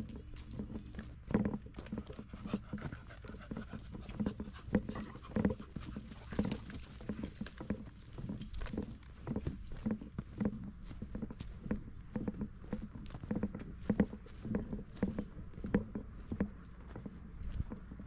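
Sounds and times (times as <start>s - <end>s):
footsteps on leafy dirt trail: 0.0s - 18.0s
dog panting: 1.8s - 9.6s.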